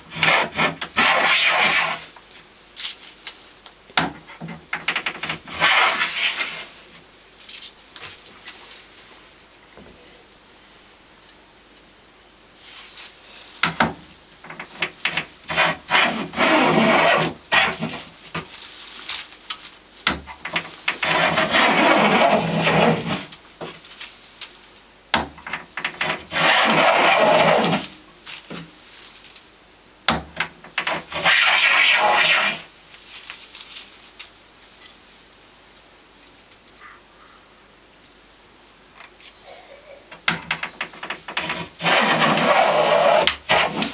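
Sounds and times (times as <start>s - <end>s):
plane blade shaving wood: 0.1s - 2.0s, 5.5s - 6.6s, 15.0s - 18.0s, 20.5s - 23.3s, 25.9s - 27.9s, 30.8s - 32.6s, 41.3s - 43.9s.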